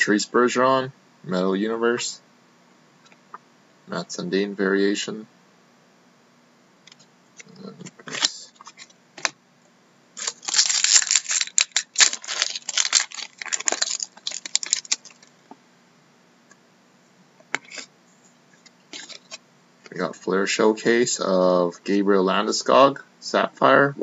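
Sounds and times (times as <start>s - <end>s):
foil wrapper crackling: 10.2s - 15.3s.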